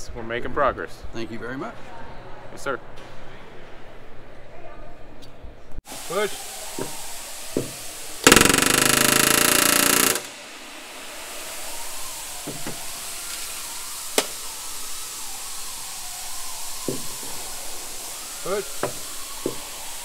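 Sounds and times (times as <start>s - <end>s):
pneumatic rivet gun hammering: 7.6s - 10.4s, 14.2s - 14.4s.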